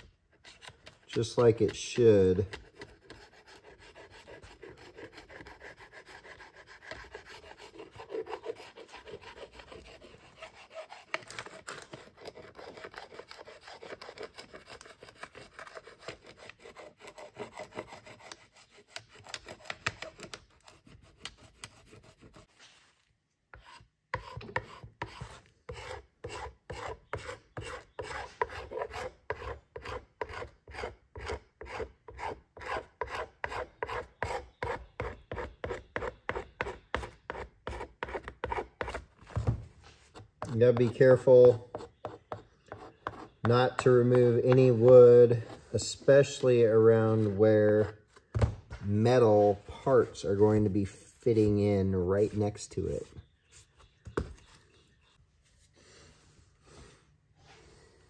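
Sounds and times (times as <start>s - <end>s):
metal scraper scraping wood: 0.0s - 22.8s, 23.5s - 48.3s.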